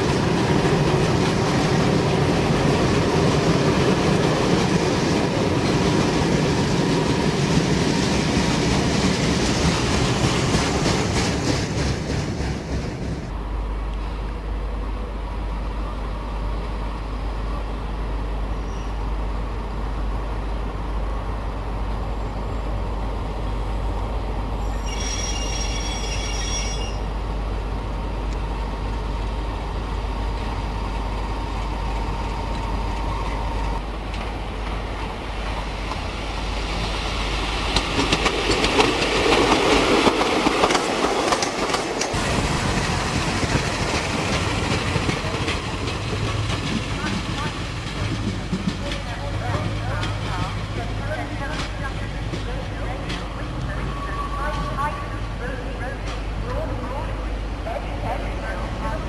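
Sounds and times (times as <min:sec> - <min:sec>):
freight wagons rumbling and clattering: 0:00.0 - 0:13.4, 0:37.8 - 0:57.1
diesel locomotive hum: 0:00.0 - 0:59.0
high squeal: 0:24.6 - 0:27.1, 0:53.7 - 0:54.8.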